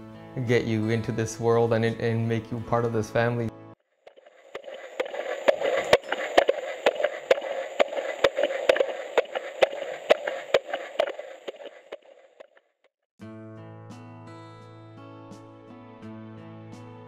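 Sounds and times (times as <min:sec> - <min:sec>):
music: 0:00.0 - 0:03.8, 0:13.2 - 0:17.0
fetal heartbeat on doppler monitor: 0:04.1 - 0:12.5.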